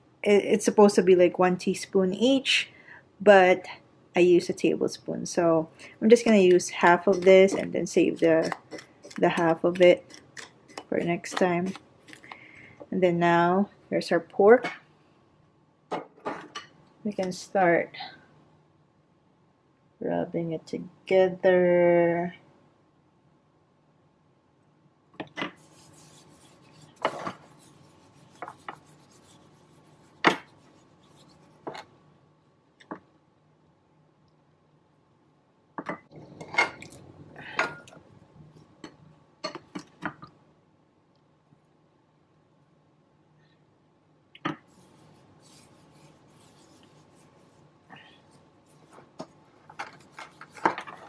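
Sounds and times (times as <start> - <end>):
hands rubbing spice into meat: 25.5 - 31.9, 44.6 - 51.0.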